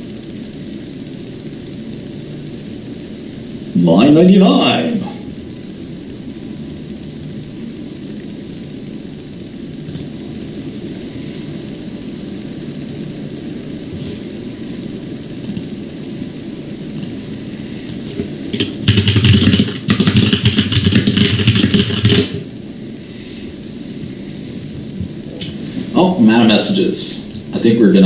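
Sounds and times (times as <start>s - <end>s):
low background hum: 0.0s - 28.0s
rapid typing on keyboard: 15.5s - 15.7s, 17.8s - 22.4s.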